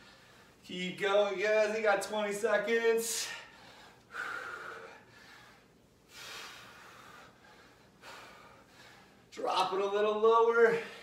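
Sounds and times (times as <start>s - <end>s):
man breathing hard: 0.0s - 0.6s, 3.1s - 9.3s.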